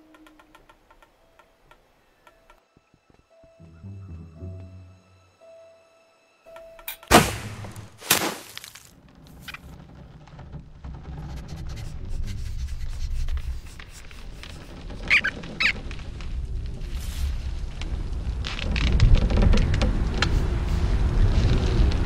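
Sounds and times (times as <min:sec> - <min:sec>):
short squeaks: 0:14.2 - 0:16.2.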